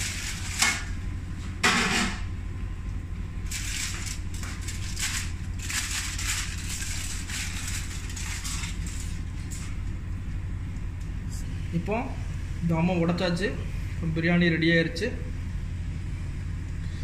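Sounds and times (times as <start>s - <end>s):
aluminium foil crinkling and tearing: 0.0s - 1.0s, 3.4s - 9.8s
steady low hum: 0.0s - 17.0s.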